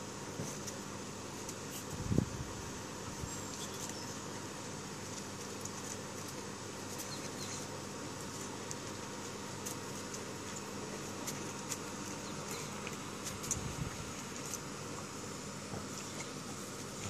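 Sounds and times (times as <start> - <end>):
background hiss and hum: 0.0 - 17.0
dog claws on tile and gravel: 5.0 - 7.4, 8.1 - 15.2.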